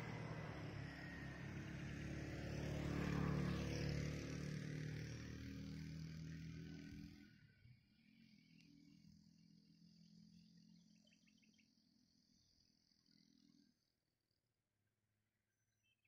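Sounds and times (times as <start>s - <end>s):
vehicle engine running: 0.0s - 7.5s.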